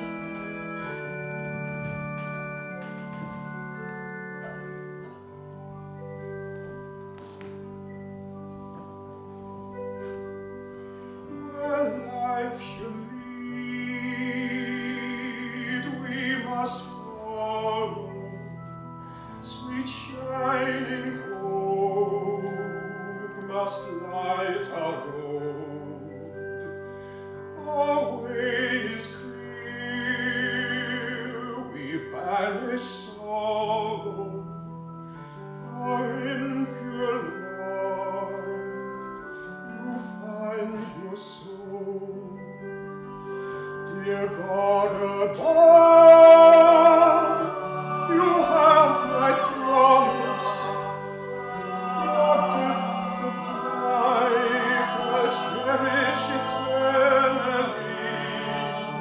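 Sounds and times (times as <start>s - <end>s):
sustained keyboard chords: 0.0s - 59.0s
operatic singing with vibrato: 11.3s - 18.6s, 43.8s - 59.0s.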